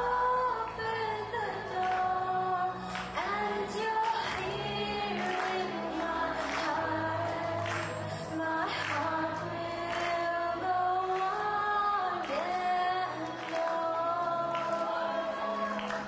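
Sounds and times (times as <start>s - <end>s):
low steady accompaniment: 0.0s - 16.0s
woman singing into a microphone: 0.0s - 16.0s.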